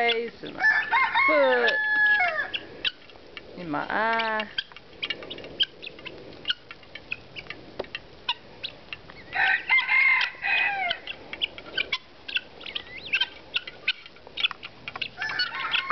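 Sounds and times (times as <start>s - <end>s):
loud fowl calls: 0.0s - 3.2s, 3.9s - 15.9s.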